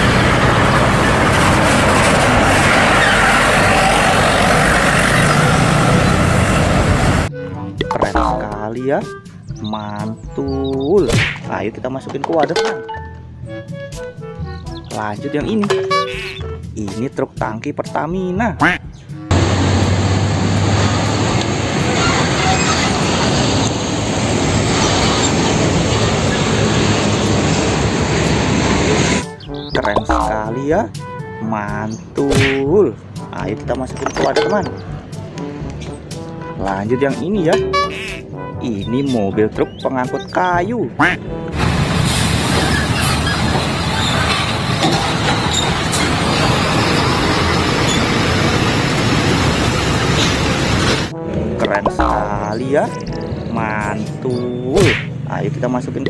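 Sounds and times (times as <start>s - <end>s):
tanker truck driving past: 0.0s - 7.7s, 19.2s - 29.7s, 41.2s - 51.6s.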